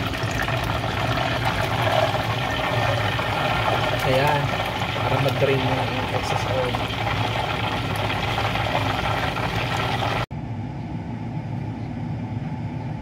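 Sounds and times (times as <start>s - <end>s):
oil sizzling in a pot: 0.0s - 10.3s
low steady hum: 0.0s - 13.0s.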